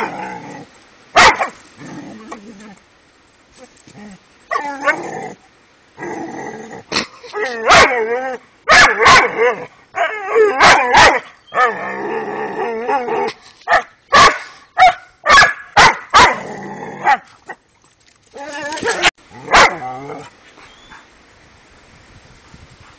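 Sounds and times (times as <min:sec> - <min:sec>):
dog barking: 0:01.2 - 0:01.6, 0:08.7 - 0:09.3, 0:10.6 - 0:11.2, 0:13.7 - 0:16.4, 0:19.5 - 0:19.8.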